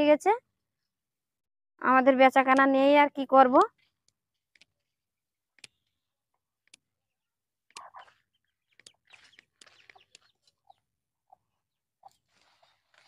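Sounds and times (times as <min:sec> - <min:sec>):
footsteps on wet ground: 0:08.0 - 0:10.5
light clicks and crackles: 0:08.7 - 0:10.4.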